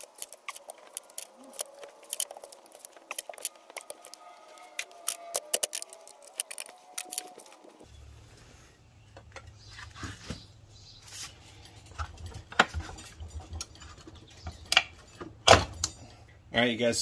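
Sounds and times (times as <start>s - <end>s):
screwdriver scraping metal: 0.0s - 7.6s.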